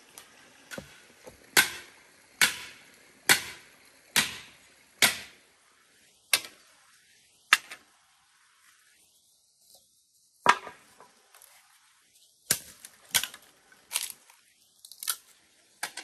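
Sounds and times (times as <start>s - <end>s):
bamboo pieces clacking: 12.5s - 16.0s.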